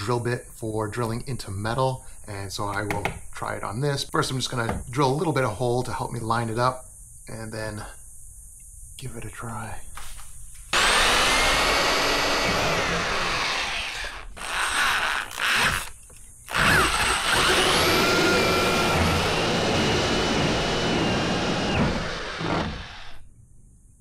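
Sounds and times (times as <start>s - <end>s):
electric drill boring into plastic: 10.7s - 23.2s.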